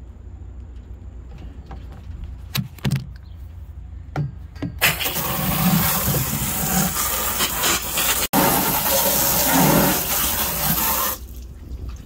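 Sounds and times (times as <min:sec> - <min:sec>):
hose spraying water into tank: 0:04.8 - 0:12.0.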